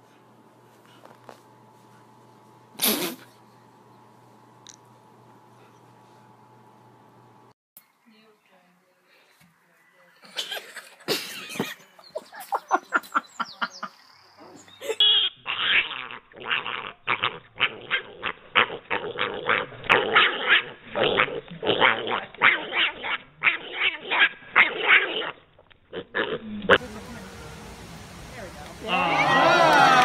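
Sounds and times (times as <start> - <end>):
piglet squealing: 15.0 - 26.7.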